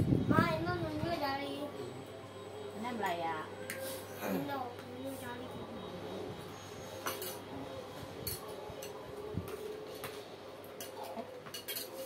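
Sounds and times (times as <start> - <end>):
spoons clinking on plates: 7.0 - 7.5, 8.2 - 9.0, 10.6 - 12.0.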